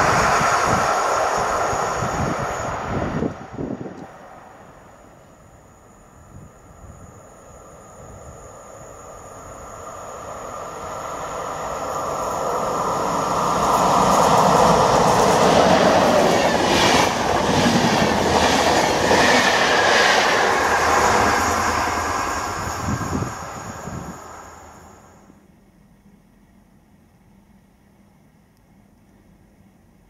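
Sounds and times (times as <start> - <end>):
passenger train passing: 0.0 - 25.4
train wheel clatter: 11.9 - 24.3.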